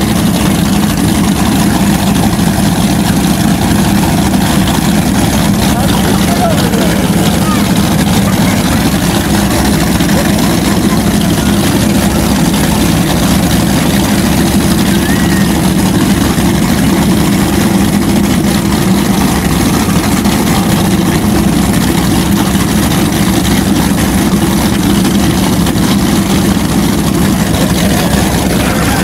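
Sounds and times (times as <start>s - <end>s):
boat engines idling: 0.0s - 29.0s.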